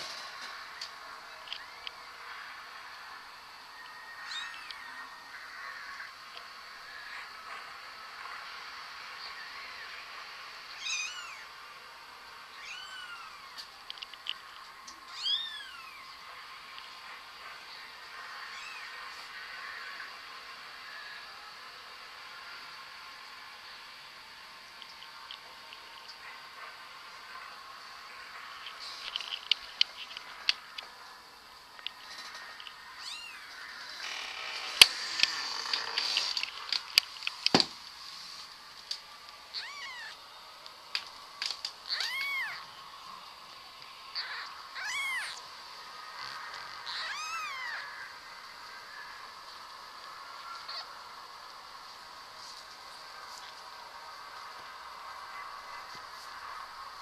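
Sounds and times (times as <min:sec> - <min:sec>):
cat meowing: 0:04.2 - 0:04.9, 0:10.8 - 0:11.4, 0:12.5 - 0:13.5, 0:15.1 - 0:16.0, 0:18.5 - 0:19.0, 0:33.0 - 0:33.5, 0:39.5 - 0:40.2, 0:41.9 - 0:42.7, 0:44.1 - 0:45.4, 0:46.8 - 0:48.0, 0:50.5 - 0:50.9.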